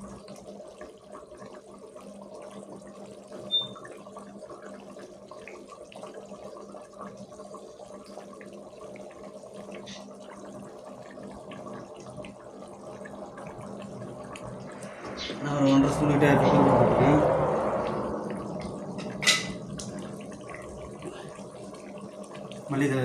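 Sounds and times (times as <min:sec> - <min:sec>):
faint steady hum: 0:00.0 - 0:23.0
curry bubbling and sloshing: 0:04.1 - 0:23.0
spoon striking pot: 0:19.0 - 0:19.6.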